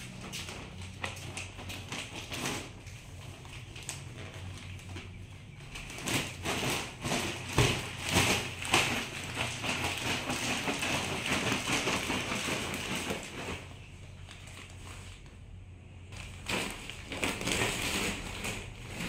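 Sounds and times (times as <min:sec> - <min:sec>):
plastic package crinkling: 0:16.1 - 0:19.0.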